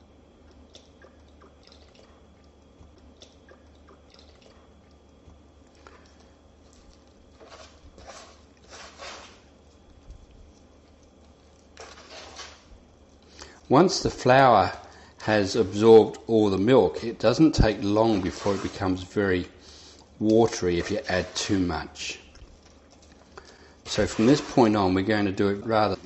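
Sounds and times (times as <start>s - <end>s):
spoon stirring thick batter: 5.3s - 26.0s.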